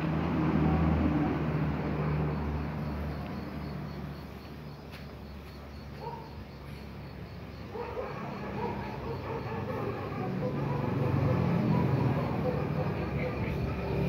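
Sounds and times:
insects chirping: 0.1 - 14.0.

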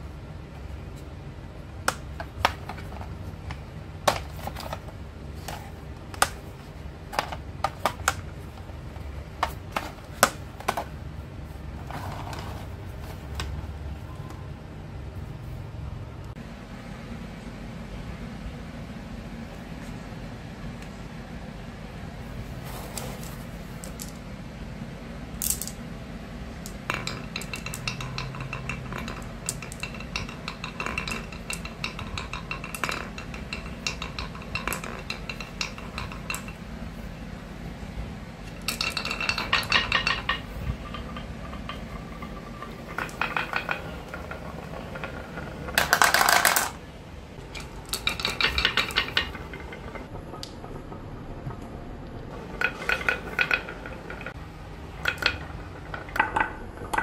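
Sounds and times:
marbles rattling down wooden run: 26.6 - 36.6, 38.6 - 46.8, 47.6 - 50.1, 52.4 - 57.0.

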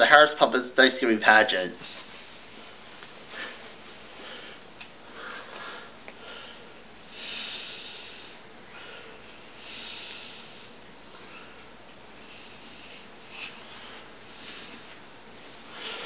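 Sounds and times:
person breathing: 3.3 - 15.0, 15.6 - 16.0.

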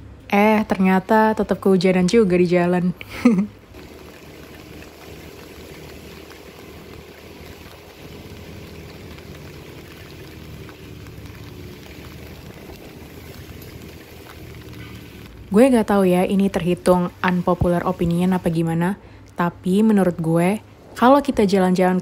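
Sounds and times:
motorbike low hum: 0.0 - 21.7
heavy rain hissing: 3.3 - 19.0
tyres on wet road: 3.7 - 19.3.

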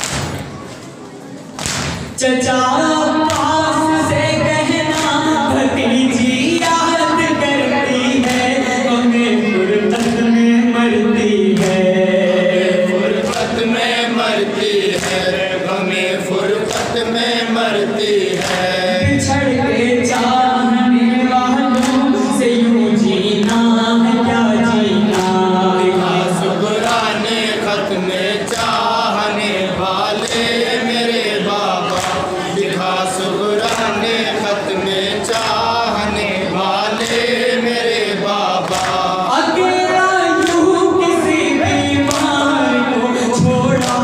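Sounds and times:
chest-beating slaps: 1.6 - 2.1
men chanting in unison: 4.2 - 44.0.

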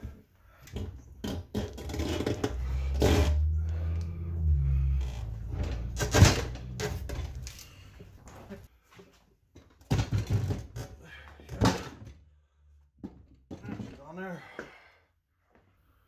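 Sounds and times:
tire tools clanking and scraping: 0.6 - 12.1.

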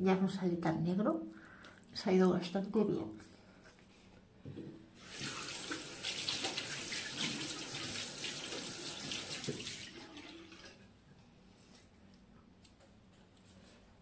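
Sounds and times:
splashing face rinse: 5.0 - 10.8
tap running into sink: 8.9 - 9.8.

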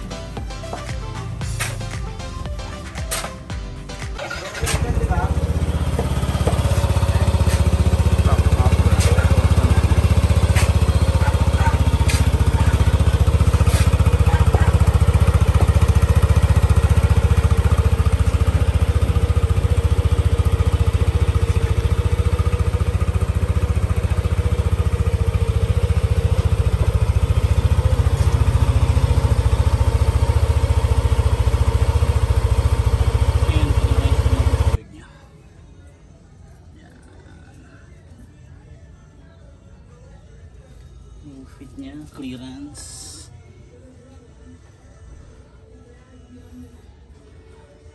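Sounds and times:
scooter engine idling: 0.0 - 34.8.

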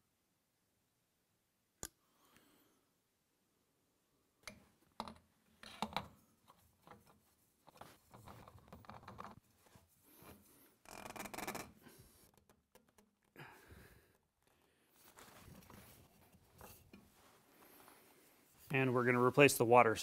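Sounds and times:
filter scraping and rubbing: 6.5 - 13.4, 15.0 - 19.2.

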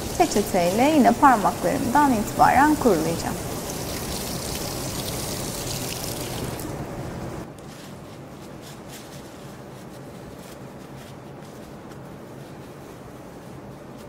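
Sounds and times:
paper napkin crinkling: 7.4 - 14.0.

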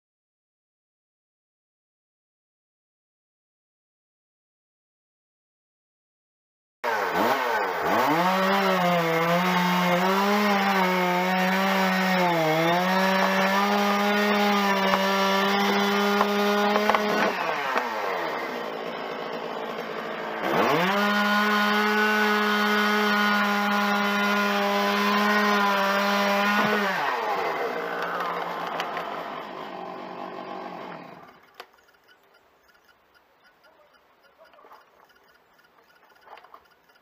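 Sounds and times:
chainsaw cutting wood: 6.8 - 33.0.

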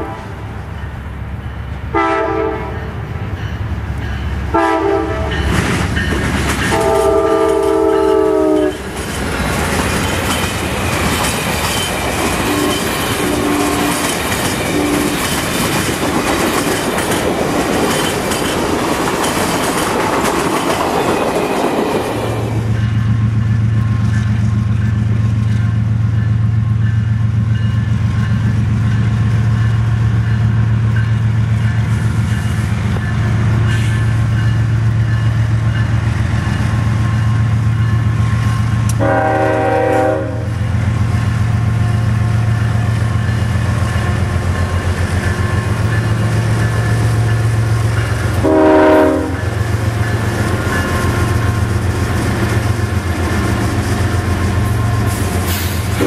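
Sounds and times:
locomotive air horn blasts: 0.0 - 0.5, 1.9 - 2.9, 4.5 - 5.4, 6.7 - 8.9, 12.4 - 14.1, 38.9 - 40.6, 48.4 - 49.5
diesel locomotive engine rumble: 0.0 - 56.0.

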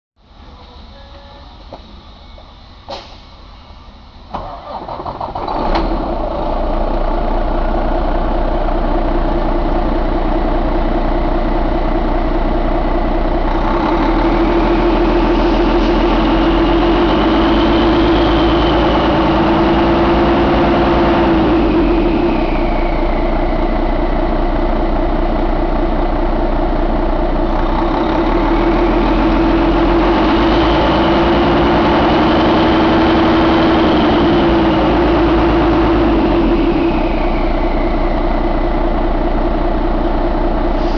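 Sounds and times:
diesel engine idling: 0.2 - 40.9.

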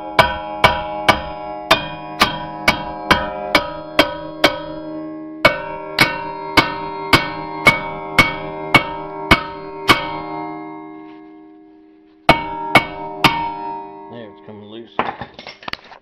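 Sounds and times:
hammer clanging on metal rotor: 0.0 - 15.7.

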